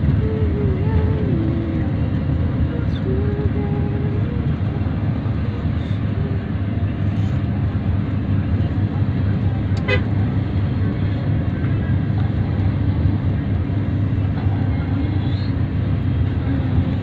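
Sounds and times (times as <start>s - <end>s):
vehicle engine and road rumble: 0.0s - 17.0s.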